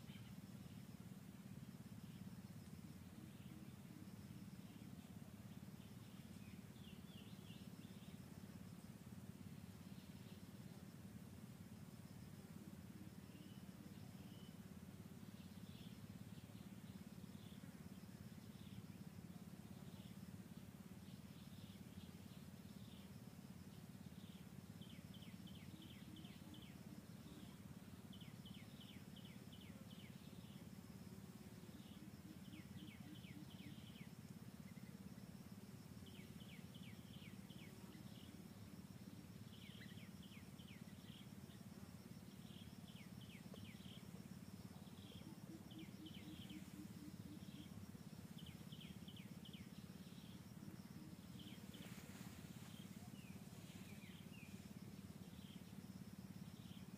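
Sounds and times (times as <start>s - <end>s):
high insect buzz: 21.0s - 56.9s.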